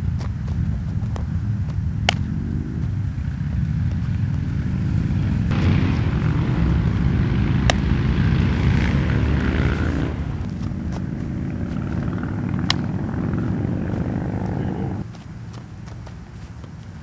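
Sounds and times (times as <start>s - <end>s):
wind buffeting microphone: 0.0s - 15.1s.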